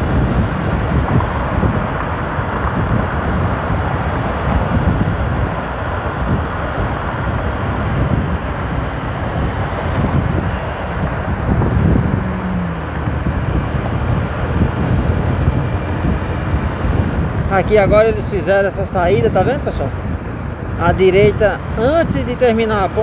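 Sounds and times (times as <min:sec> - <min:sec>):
motorcycle engine: 0:00.0 - 0:17.7
road noise: 0:00.0 - 0:23.0
wind rushing over microphone: 0:00.0 - 0:23.0.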